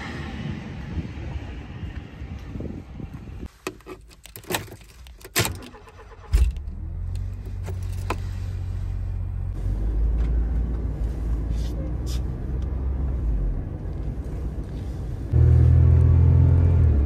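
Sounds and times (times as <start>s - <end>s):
keys jingling in ignition: 3.8s - 6.6s
van engine starting and idling: 5.3s - 11.4s.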